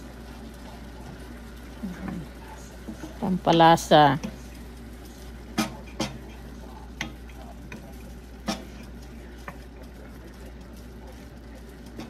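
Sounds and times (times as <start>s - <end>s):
frying sizzle: 0.0s - 12.0s
spatula knocking and scraping pan: 5.5s - 6.4s, 7.0s - 9.6s.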